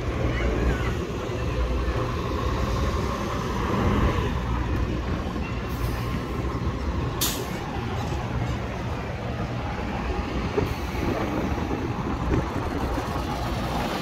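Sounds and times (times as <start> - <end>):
bus engines running: 0.0 - 14.0
street traffic: 0.0 - 14.0
air brakes hissing: 7.2 - 7.6.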